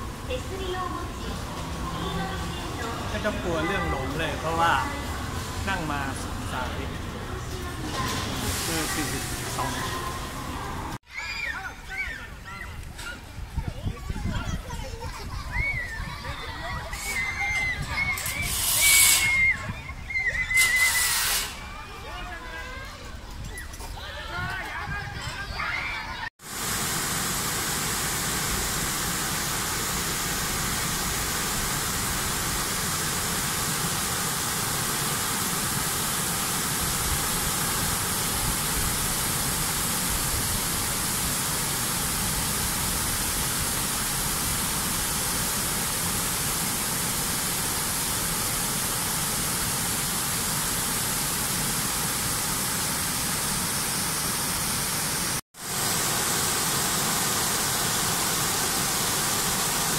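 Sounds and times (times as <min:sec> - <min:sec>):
river water rushing over weirs: 0:00.0 - 0:11.0, 0:26.4 - 0:59.9.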